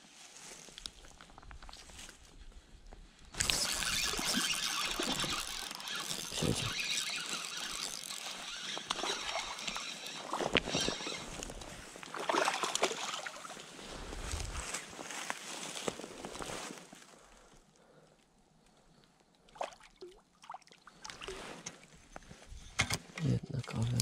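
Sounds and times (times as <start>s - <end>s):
fish splashing: 3.4s - 11.3s, 12.0s - 13.7s
fishing reel cranking: 3.4s - 11.7s.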